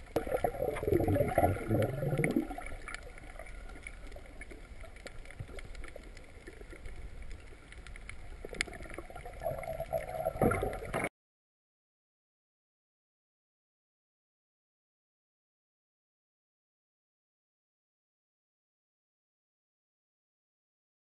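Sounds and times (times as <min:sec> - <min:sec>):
muffled underwater water rush: 0:00.0 - 0:11.1
faint clicks: 0:01.7 - 0:11.1.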